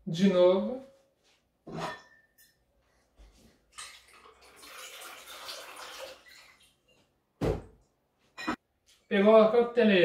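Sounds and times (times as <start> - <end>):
liquid pouring into metal shaker: 3.8 - 6.7.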